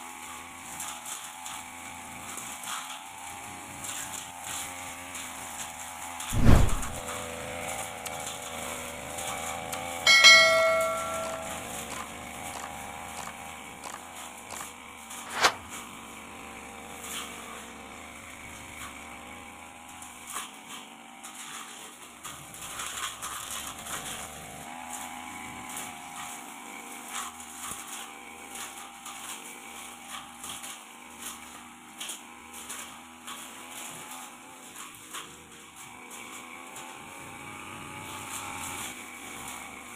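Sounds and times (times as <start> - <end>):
brush cutter cutting grass: 0.0 - 39.9
blade ticks: 9.7 - 15.6
bell-like ring: 10.1 - 11.7
sharp click: 15.3 - 15.6.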